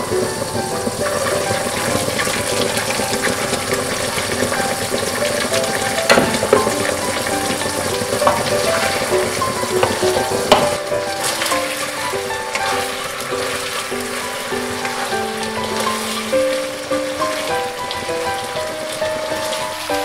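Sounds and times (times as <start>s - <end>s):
background music: 0.0s - 20.0s
food sizzling in sauce: 0.0s - 20.0s
utensil knocking on pan: 0.6s - 11.7s.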